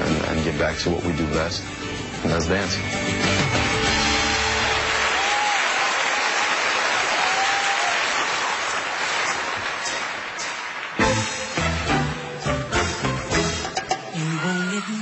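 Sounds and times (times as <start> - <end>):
audience applauding and cheering: 2.8 - 15.0.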